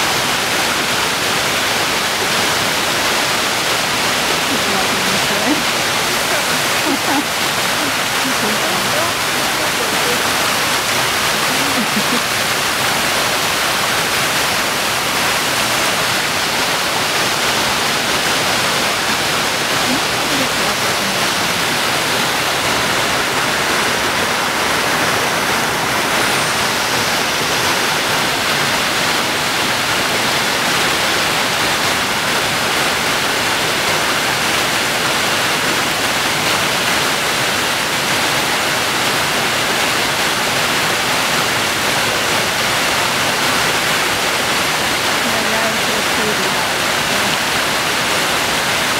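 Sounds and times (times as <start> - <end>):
creek rushing over rocks: 0.0 - 48.9.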